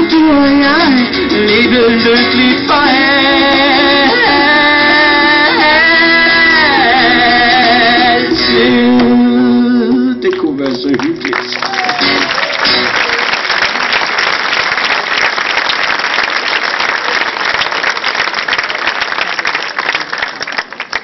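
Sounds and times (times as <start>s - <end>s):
acoustic guitars playing: 0.0s - 13.2s
audience applauding: 10.3s - 21.0s.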